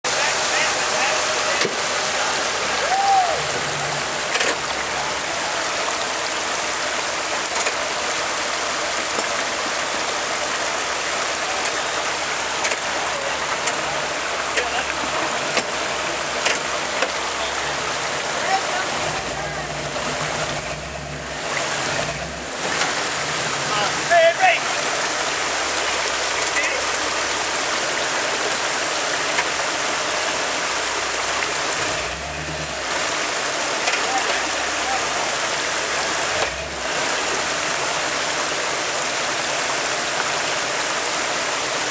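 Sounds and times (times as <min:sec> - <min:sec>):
truck engine running low: 0:00.1 - 0:24.1
water rushing over waterfall: 0:00.1 - 0:41.9.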